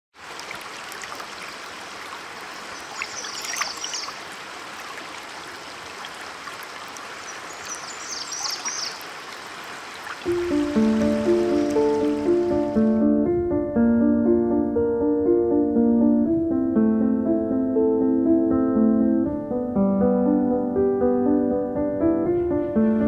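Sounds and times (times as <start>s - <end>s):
songbird singing: 2.5s - 4.4s, 5.2s - 12.9s
music: 10.3s - 23.0s.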